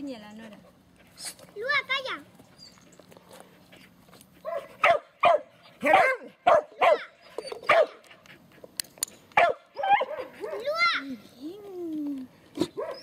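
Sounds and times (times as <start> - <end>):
dog barking: 4.4 - 7.1, 7.7 - 8.0, 9.4 - 10.7, 12.7 - 13.0.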